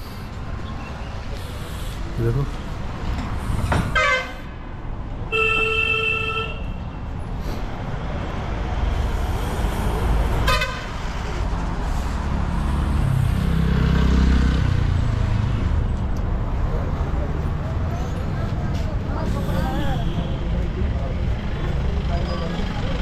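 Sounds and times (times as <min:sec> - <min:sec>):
low traffic rumble: 0:00.0 - 0:23.0
vehicle horns honking: 0:03.9 - 0:04.4, 0:05.3 - 0:06.8, 0:10.4 - 0:11.0.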